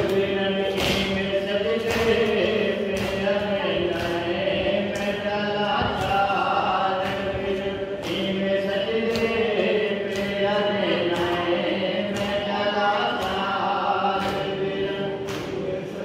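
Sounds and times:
chest-beating slaps: 0.0s - 16.0s
group chanting a lament: 0.0s - 16.0s.

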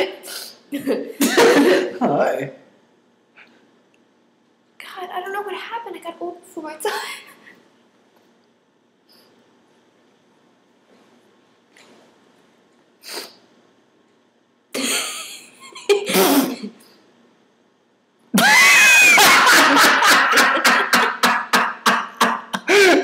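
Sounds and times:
man and woman laughing: 1.2s - 2.0s, 18.5s - 23.0s
shrieking laughter: 18.4s - 23.0s.

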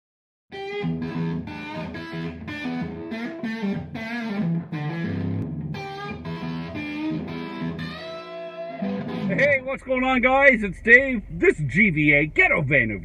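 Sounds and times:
electric guitar chords: 0.5s - 9.8s.

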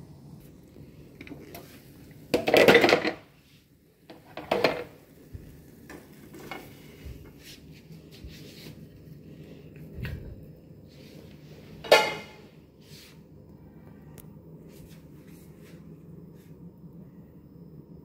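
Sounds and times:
utensil scraping frying pan: 11.8s - 12.4s.

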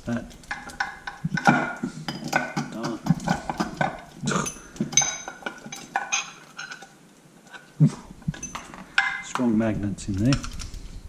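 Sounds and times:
metal hand tools clinking: 0.1s - 10.6s
low voice-like sounds: 7.8s - 8.1s.

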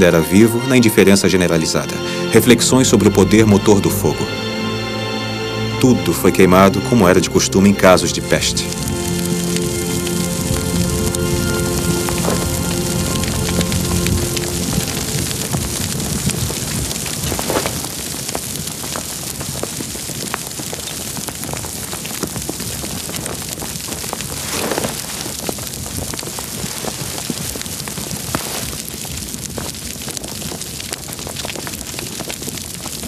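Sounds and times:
fire crackling: 0.0s - 33.0s
flames rushing: 8.2s - 33.0s.

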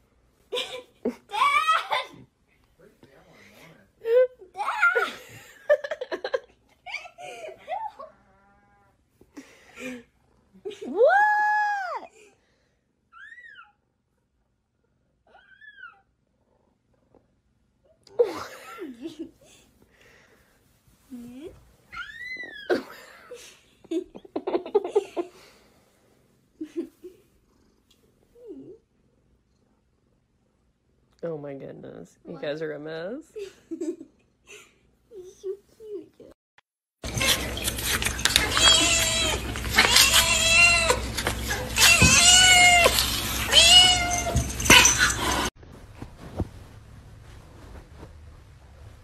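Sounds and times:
cat purring: 27.2s - 30.8s.

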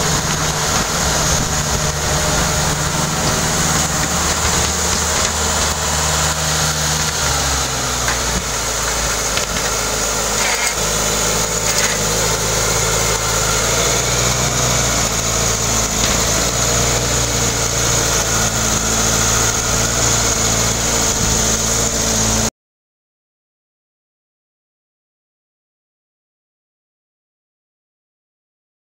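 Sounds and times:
car engine running at low speed: 0.0s - 22.5s.

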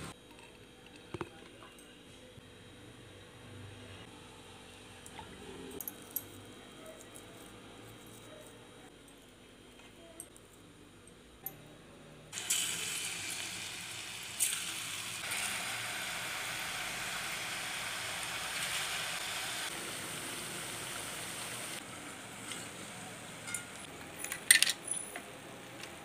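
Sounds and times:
dough sizzling in hot oil: 12.4s - 21.8s.

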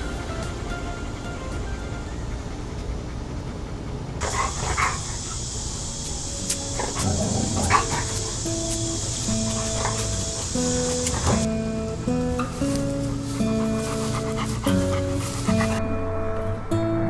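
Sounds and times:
steady hiss: 4.2s - 15.8s
guitar music: 4.2s - 17.0s.

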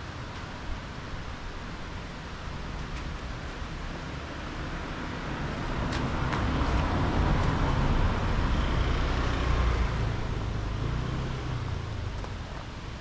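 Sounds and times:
vehicle passing by: 4.3s - 12.2s.

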